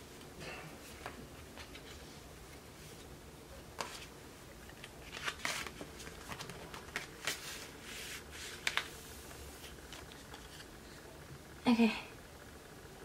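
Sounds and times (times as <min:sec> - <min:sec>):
packaging rustling: 0:04.7 - 0:07.7.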